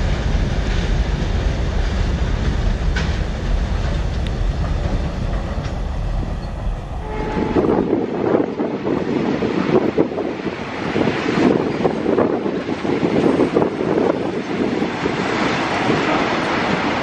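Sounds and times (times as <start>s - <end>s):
wheels clacking over rail joints: 0.0s - 6.9s
freight train rumbling over bridge: 0.0s - 17.0s.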